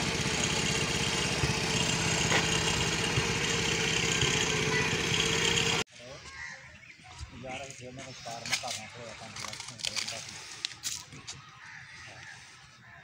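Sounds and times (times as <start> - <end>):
motorcycle engine idling: 0.0 - 5.8.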